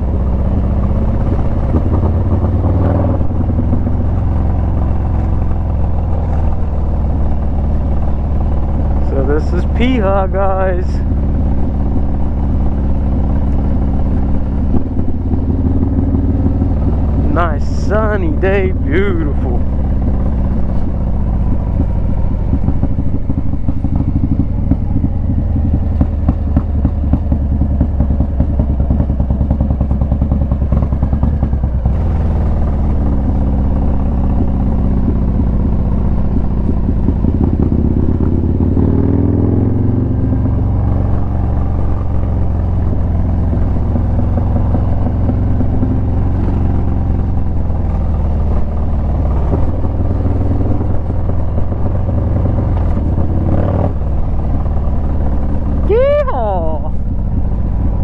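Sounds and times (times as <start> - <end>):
motorcycle engine riding along: 0.0 - 58.0.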